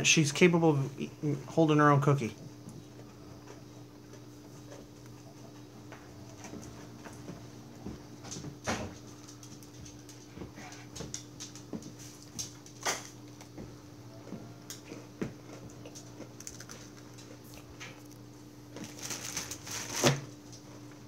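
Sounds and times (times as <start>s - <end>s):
steady low hum: 0.0s - 21.0s
child chewing a cookie: 2.4s - 18.9s.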